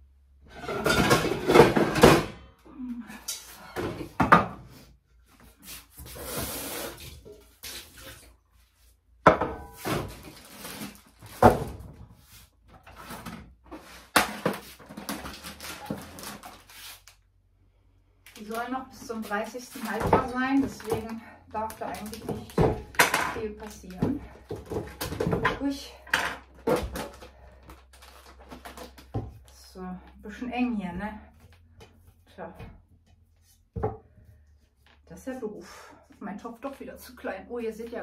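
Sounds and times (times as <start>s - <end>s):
pots and dishes clattering: 0.6s - 2.4s.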